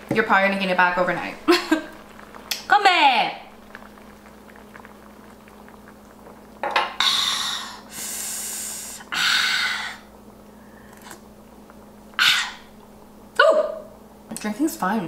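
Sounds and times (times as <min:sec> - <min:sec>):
woman exhaling hard: 0:07.0 - 0:10.1.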